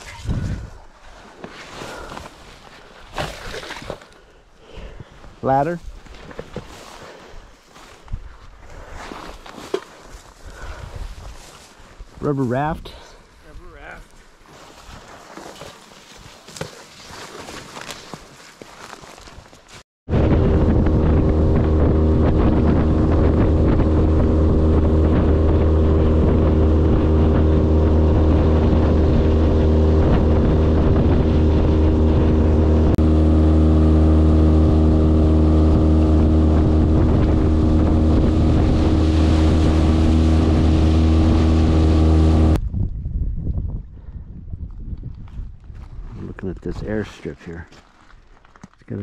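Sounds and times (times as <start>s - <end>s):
wind on microphone: 0.0s - 0.9s, 20.1s - 46.2s
outboard motor running: 20.1s - 42.6s.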